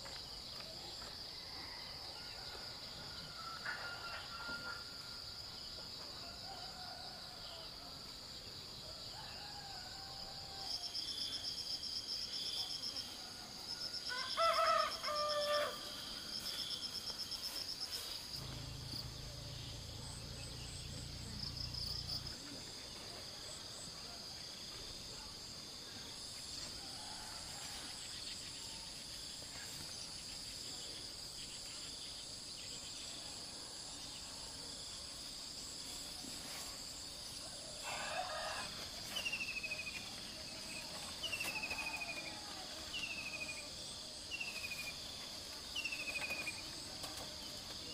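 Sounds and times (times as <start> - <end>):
high insect drone: 0.0 - 47.9
rooster crowing: 9.0 - 10.8, 13.8 - 15.9, 37.8 - 39.0
pulsing insect chirps: 16.0 - 22.6.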